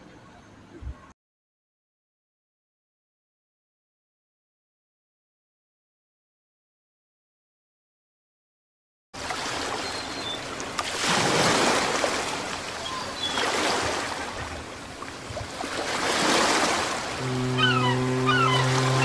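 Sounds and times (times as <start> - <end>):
ocean surf washing onto beach: 9.2 - 19.0.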